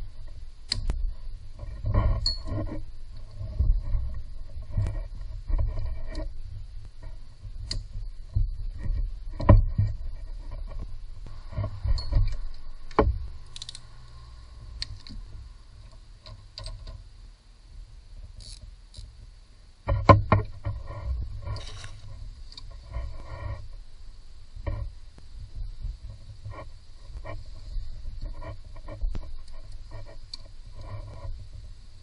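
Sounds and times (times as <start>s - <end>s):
rustling handling noise: 19.9s - 23.9s.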